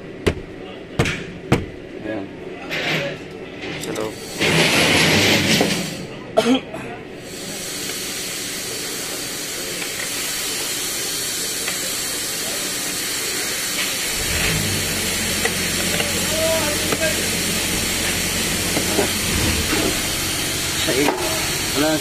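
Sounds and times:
steady hiss: 0:07.2 - 0:22.0.

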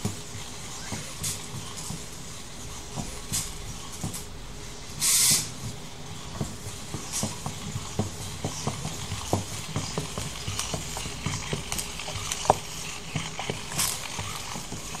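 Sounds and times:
robot feet tapping floor: 0:02.9 - 0:04.3, 0:04.9 - 0:15.0
loud hissing burst: 0:05.0 - 0:05.5
servos clicking and grinding: 0:07.0 - 0:15.0.

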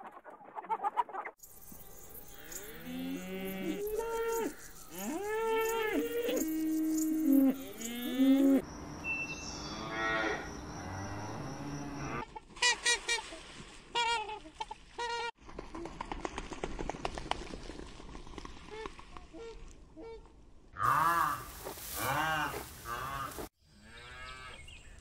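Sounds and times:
cows mooing: 0:02.3 - 0:08.6.

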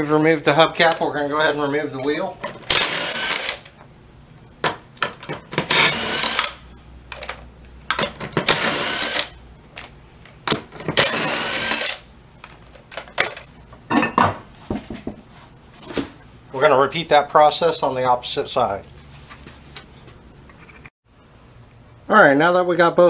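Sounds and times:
power driver spinning lug nuts: 0:02.6 - 0:03.8, 0:05.5 - 0:06.6, 0:08.4 - 0:09.4, 0:10.8 - 0:12.1.

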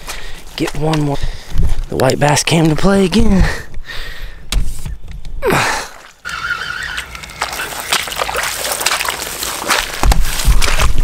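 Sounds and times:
footsteps through tall weeds: 0:06.2 - 0:11.0.

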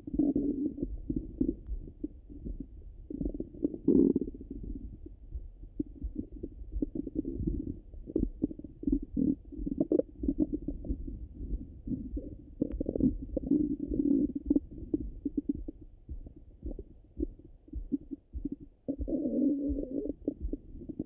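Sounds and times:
stomach gurgles and clicks: 0:00.0 - 0:21.0.

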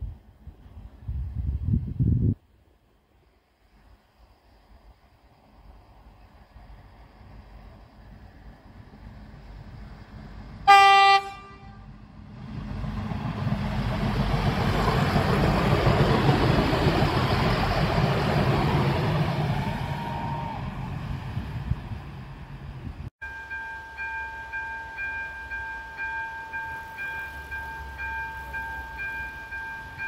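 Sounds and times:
railcar engine and wheels passing: 0:00.0 - 0:30.0
train horn blast: 0:10.6 - 0:12.0.

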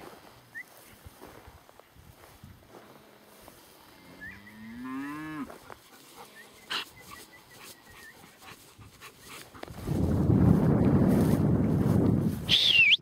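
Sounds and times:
cow mooing: 0:04.0 - 0:05.6.

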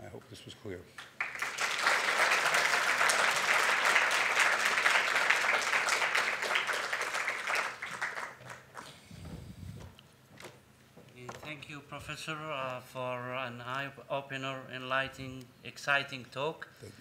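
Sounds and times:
audience applauding: 0:01.0 - 0:08.9.

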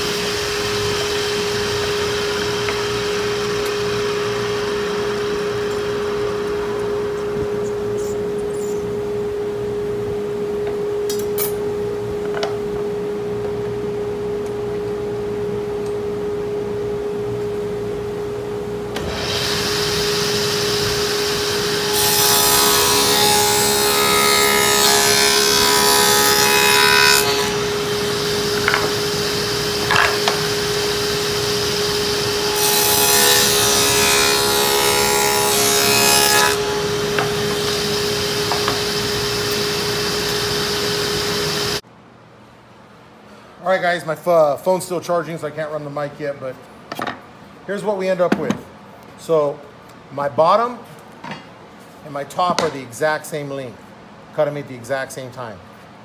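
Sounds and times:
table saw cutting wood: 0:00.0 - 0:08.8, 0:19.0 - 0:41.8
table saw motor humming: 0:00.0 - 0:09.0, 0:19.0 - 0:41.8.

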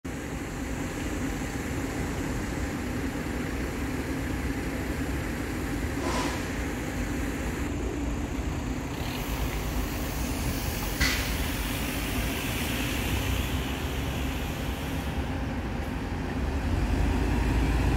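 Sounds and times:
bus diesel engine running: 0:00.0 - 0:17.9
brief hiss: 0:06.0 - 0:06.6.

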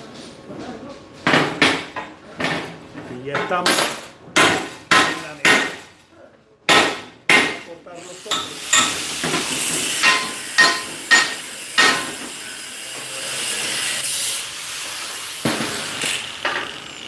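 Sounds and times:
angle grinder cutting steel: 0:08.0 - 0:17.0
hammer blows on steel: 0:10.0 - 0:12.3.

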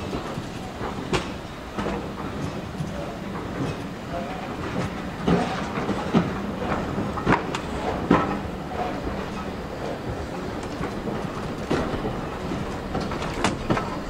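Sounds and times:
railway carriage rumbling on track: 0:00.0 - 0:14.0.

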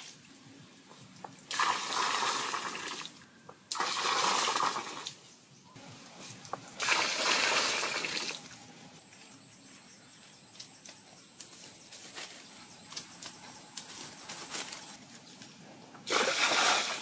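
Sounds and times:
water gushing into a pool: 0:01.5 - 0:03.1, 0:03.8 - 0:05.1, 0:06.8 - 0:08.4, 0:16.1 - 0:17.0
high-pitched whine: 0:09.0 - 0:15.0.

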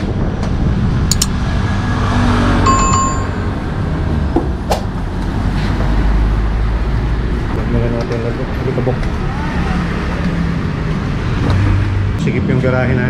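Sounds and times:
street traffic rumble: 0:00.0 - 0:13.0
brief ringing tone: 0:02.7 - 0:03.6.

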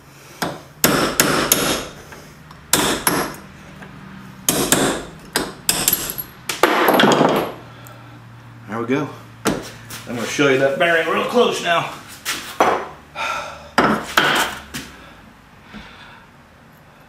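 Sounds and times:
hammer striking steel punch: 0:00.4 - 0:01.9, 0:02.7 - 0:03.4, 0:04.5 - 0:07.5.

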